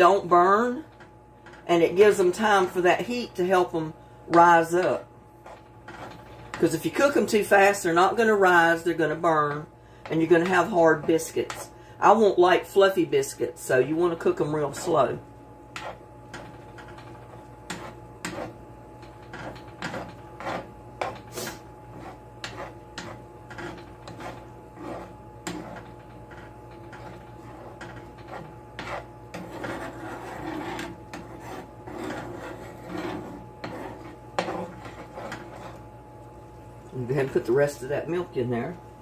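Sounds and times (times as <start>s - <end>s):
metal spoon scraping a pan: 1.0s - 11.7s, 15.7s - 35.9s.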